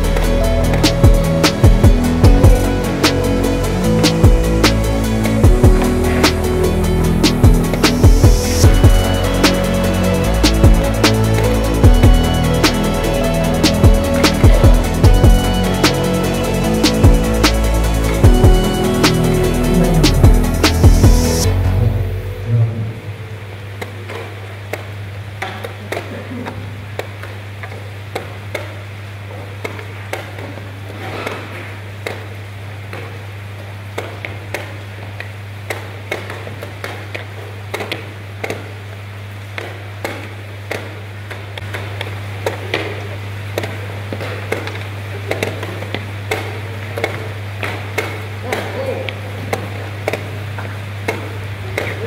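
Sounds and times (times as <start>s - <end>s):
steady low hum: 0.0s - 25.4s.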